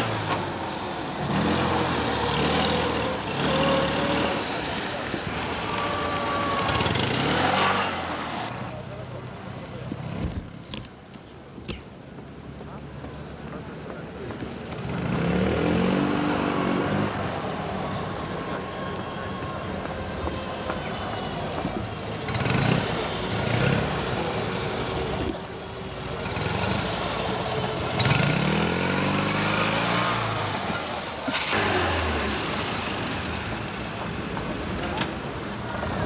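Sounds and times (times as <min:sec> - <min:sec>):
rally car engines revving: 0:00.0 - 0:08.8, 0:13.4 - 0:36.0.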